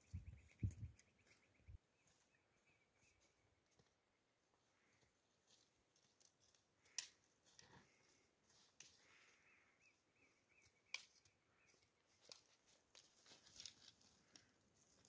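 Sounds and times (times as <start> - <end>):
faint high chirp: 0.0 - 3.5.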